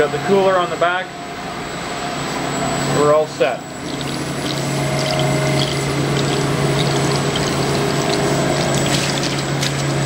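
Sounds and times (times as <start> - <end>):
low machine hum: 0.0 - 10.0
oil running into plastic tub: 3.8 - 10.0.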